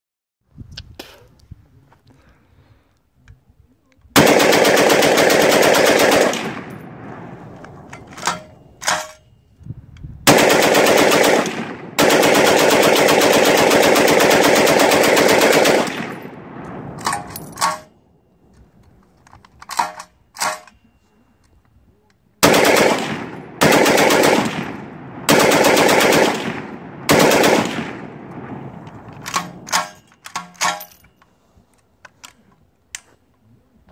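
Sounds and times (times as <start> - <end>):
machine gun firing bursts: 4.2 - 7.0, 10.3 - 16.4, 22.4 - 28.3.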